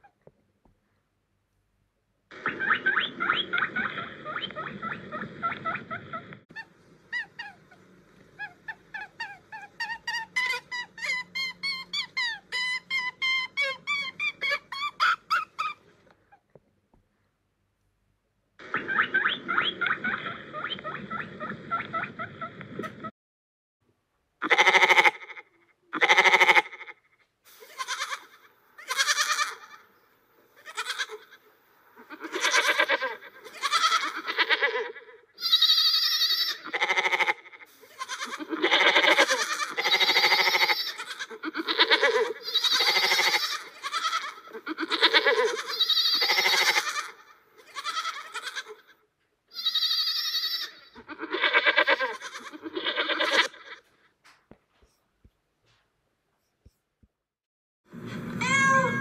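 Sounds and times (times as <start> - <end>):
goat bleating: 24.4 - 27.0, 27.6 - 29.8, 30.6 - 53.9, 58.4 - 59.0.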